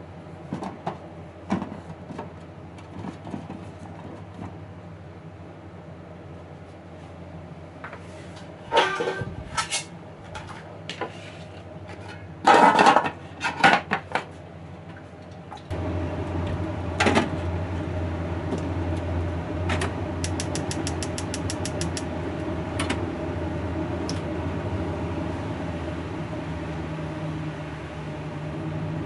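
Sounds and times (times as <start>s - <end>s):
mechanical hum: 0.0s - 29.0s
quick ticks: 20.2s - 22.1s.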